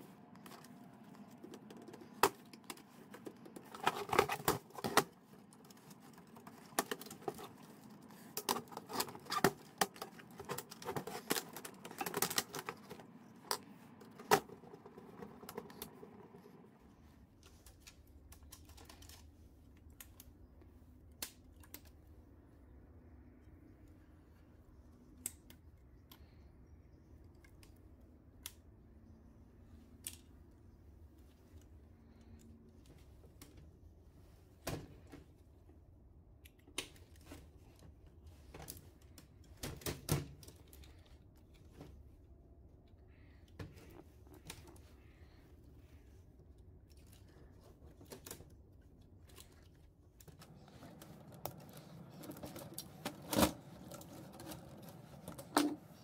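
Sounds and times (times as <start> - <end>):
clicks and knocks of parts: 0.3 - 16.5, 17.4 - 20.4, 46.6 - 56.0.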